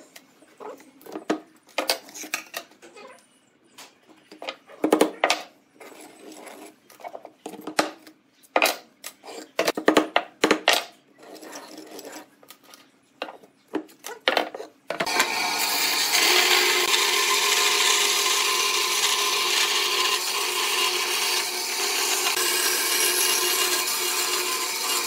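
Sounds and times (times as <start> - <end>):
band saw running: 15.0 - 25.0.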